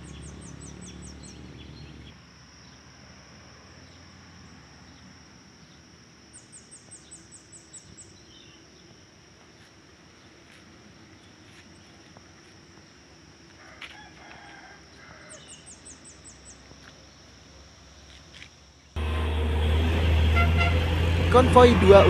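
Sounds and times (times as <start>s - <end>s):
diesel truck engine: 0.0s - 2.2s, 19.0s - 22.0s
high insect hum: 0.0s - 19.1s
rooster crowing: 13.6s - 15.6s.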